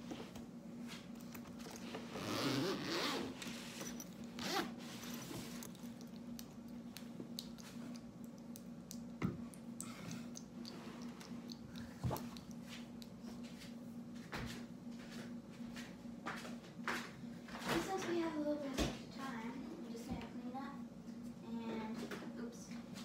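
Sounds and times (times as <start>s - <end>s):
bag handling: 1.5s - 5.6s
backpack zipper rasping: 2.1s - 4.8s.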